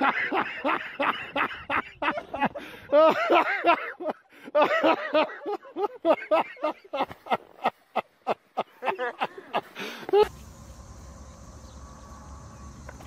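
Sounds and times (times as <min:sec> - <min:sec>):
hearty human laughter: 0:00.0 - 0:10.3.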